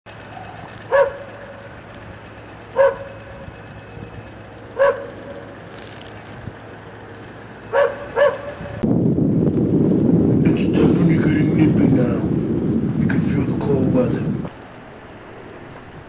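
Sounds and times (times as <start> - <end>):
dog barking: 0.9 - 1.6, 2.7 - 3.2, 4.8 - 5.2, 7.7 - 8.8.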